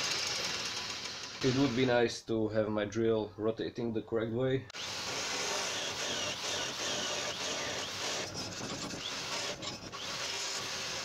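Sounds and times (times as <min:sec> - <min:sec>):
drill cutting into steel: 0:00.0 - 0:01.9, 0:04.8 - 0:11.0
drill bit squeaking: 0:00.1 - 0:01.9, 0:04.8 - 0:11.0.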